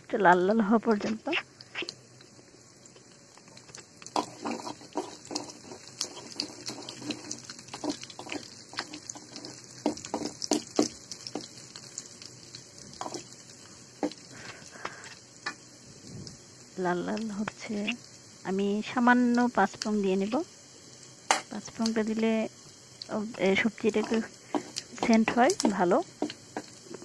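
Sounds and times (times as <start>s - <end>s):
onions sizzling in hot oil: 0.0s - 27.0s
oil crackling and popping: 0.3s - 27.0s
spatula stirring: 3.5s - 14.5s, 23.8s - 27.0s.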